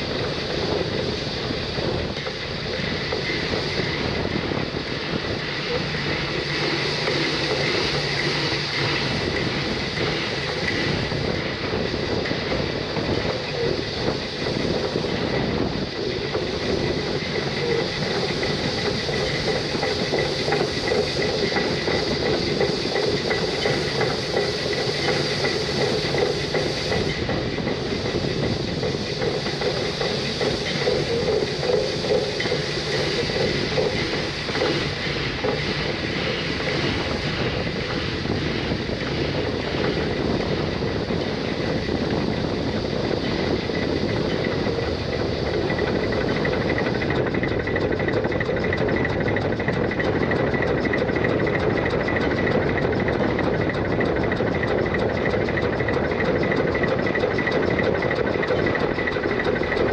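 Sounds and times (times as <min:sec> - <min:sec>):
steam train wheel clatter: 0:00.0 - 0:59.9.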